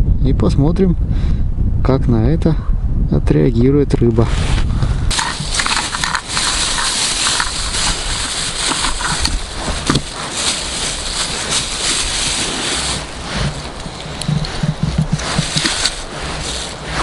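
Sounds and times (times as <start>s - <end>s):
plastic bag crinkling and rustling: 5.1s - 17.0s.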